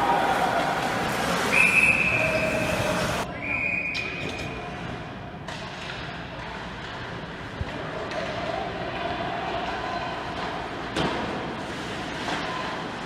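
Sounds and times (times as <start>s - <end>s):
background noise: 0.0s - 13.0s
referee's whistle blasts: 1.5s - 2.6s, 3.3s - 4.4s.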